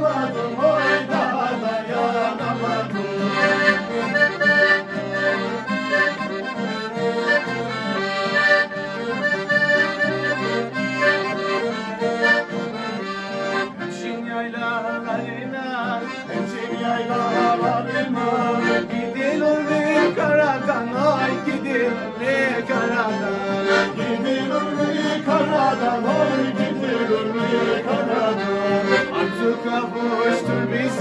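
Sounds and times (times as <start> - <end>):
accordions playing folk tune: 0.0 - 31.0
acoustic guitar: 0.0 - 31.0.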